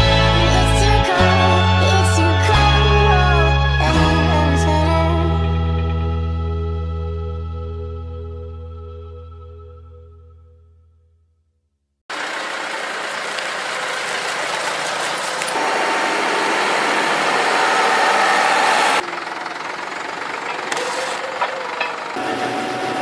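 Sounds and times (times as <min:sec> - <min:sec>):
tractor diesel engines running: 0:12.1 - 0:23.0.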